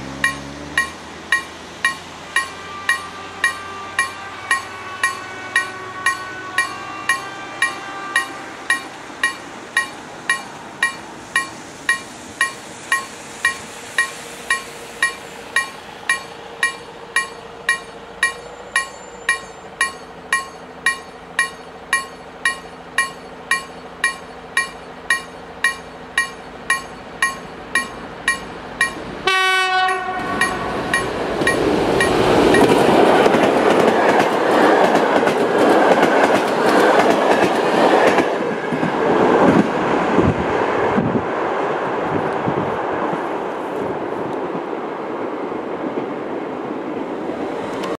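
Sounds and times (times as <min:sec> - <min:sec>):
train passing: 0:00.0 - 0:48.0
level crossing bell ringing: 0:00.2 - 0:12.1
locomotive horn blast: 0:02.1 - 0:09.1, 0:29.2 - 0:32.5.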